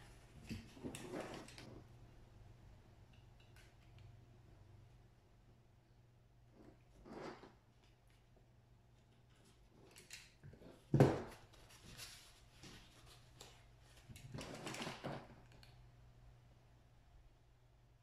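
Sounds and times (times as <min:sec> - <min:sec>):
paper plates rustling and scraping: 0:00.3 - 0:01.8, 0:09.3 - 0:15.4.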